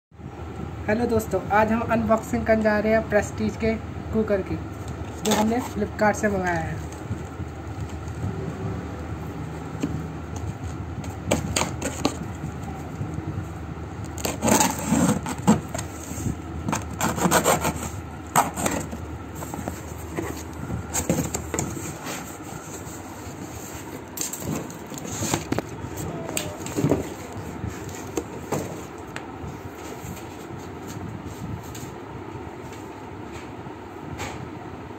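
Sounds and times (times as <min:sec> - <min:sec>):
cardboard flaps scraping: 0:09.6 - 0:12.9, 0:14.1 - 0:31.9
tape tearing from cardboard: 0:14.1 - 0:16.0, 0:16.7 - 0:19.0.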